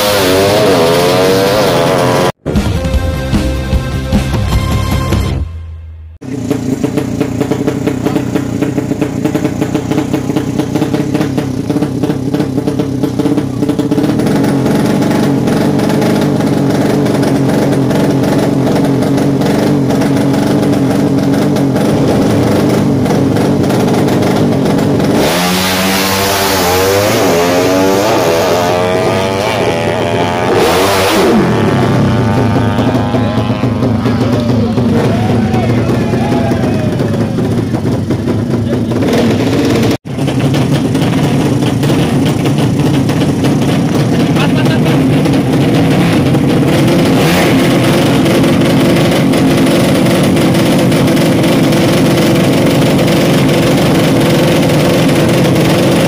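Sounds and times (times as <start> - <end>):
motorcycle engine revving: 0.0 - 4.4, 6.2 - 56.0
intro music: 0.7 - 6.4
motorcycle passing by: 25.1 - 37.9.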